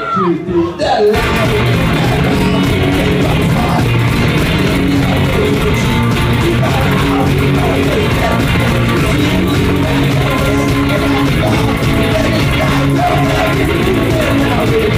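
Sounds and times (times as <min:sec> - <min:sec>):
electric guitars strummed: 0:01.1 - 0:14.9
steady drum beat: 0:01.2 - 0:14.9.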